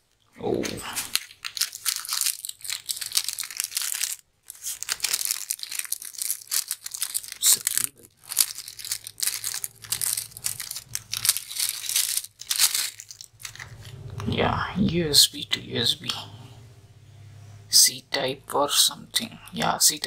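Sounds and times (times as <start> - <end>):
plastic bag crinkling: 0.0 - 14.0.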